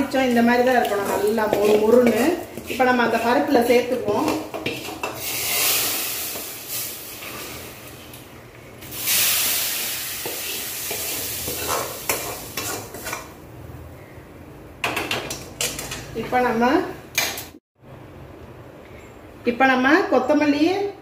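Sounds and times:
hot oil sizzling: 0:00.0 - 0:13.4.

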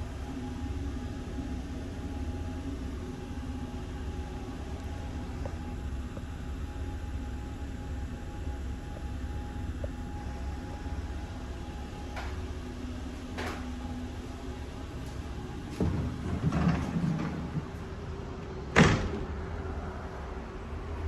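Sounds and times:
railcar running rumble: 0:00.0 - 0:21.0
sliding door rolling on track: 0:12.1 - 0:19.7.

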